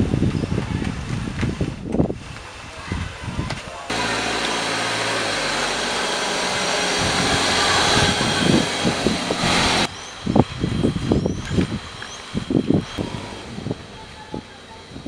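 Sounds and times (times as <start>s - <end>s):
road and wind noise: 0.0s - 15.0s
car engine hum: 3.9s - 15.0s.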